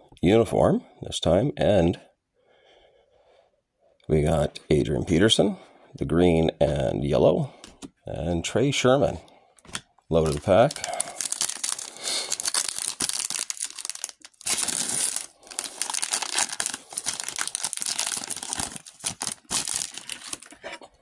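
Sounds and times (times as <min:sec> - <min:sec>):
foil wrapper tearing and crinkling: 0:10.2 - 0:20.8.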